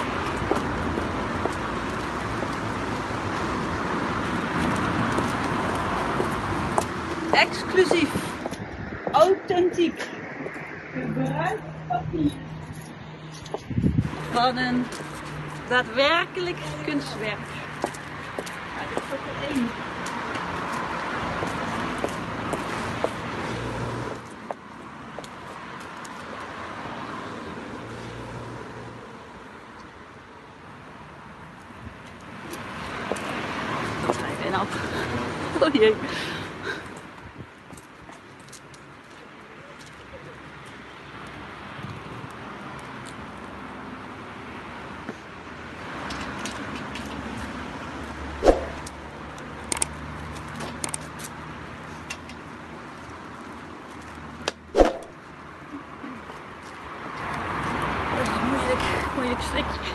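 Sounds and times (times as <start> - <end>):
heeled boots on brick paving: 0.0 - 9.2, 12.5 - 27.1
car passing: 0.0 - 31.4, 32.2 - 37.3, 40.8 - 55.6, 56.3 - 59.9
road traffic noise: 0.0 - 59.9
sharp knock: 54.8 - 55.2.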